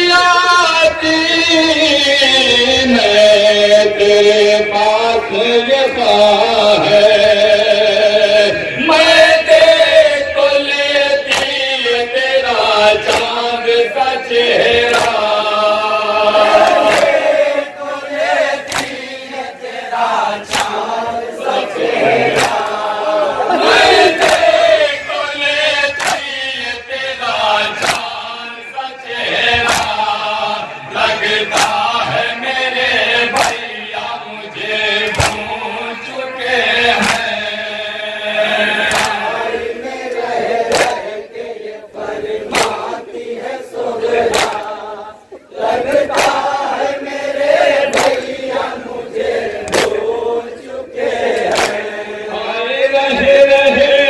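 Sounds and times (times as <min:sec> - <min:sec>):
man chanting into microphone: 0:00.0 - 0:20.5, 0:23.5 - 0:40.1, 0:51.7 - 0:54.0
group of men chanting: 0:00.0 - 0:54.0
chest slaps: 0:16.6 - 0:17.2, 0:18.7 - 0:19.0, 0:20.5 - 0:20.8, 0:22.3 - 0:22.8, 0:26.0 - 0:26.3, 0:27.8 - 0:28.2, 0:29.6 - 0:30.0, 0:31.5 - 0:31.9, 0:33.4 - 0:33.7, 0:35.0 - 0:35.6, 0:37.0 - 0:37.3, 0:38.9 - 0:39.3, 0:40.7 - 0:41.2, 0:42.5 - 0:42.9, 0:44.3 - 0:44.8, 0:46.1 - 0:46.4, 0:47.9 - 0:48.2, 0:49.7 - 0:50.0, 0:51.4 - 0:51.8.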